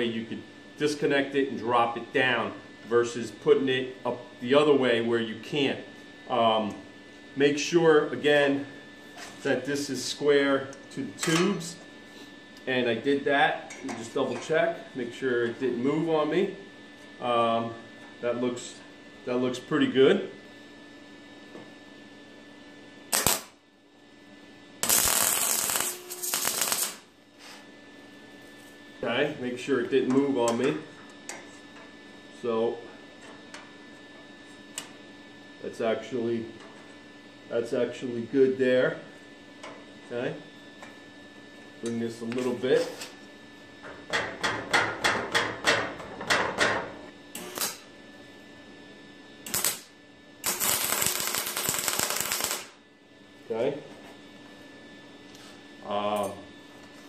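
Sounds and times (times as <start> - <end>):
arc welding crackling: 23.1 - 23.6, 24.8 - 27.2, 47.4 - 47.9, 49.4 - 52.8.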